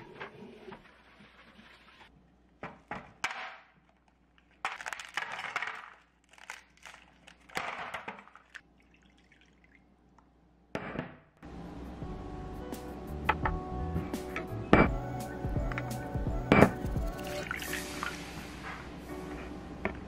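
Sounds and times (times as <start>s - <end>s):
ice balls clattering into tub: 4.6s - 9.2s.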